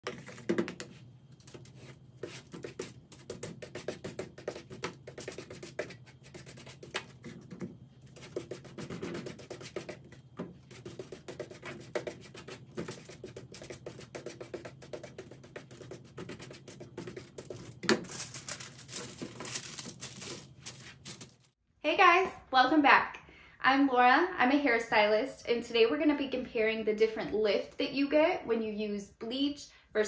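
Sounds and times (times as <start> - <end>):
brush tapping and scratching: 0.0 - 21.5
steady low hum: 0.0 - 21.6
aluminium foil crinkling: 17.4 - 21.6.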